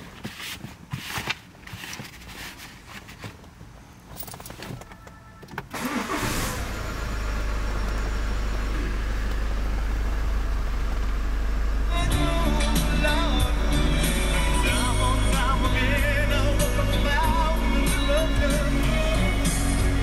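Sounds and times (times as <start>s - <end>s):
car engine starting and idling: 4.2s - 20.0s.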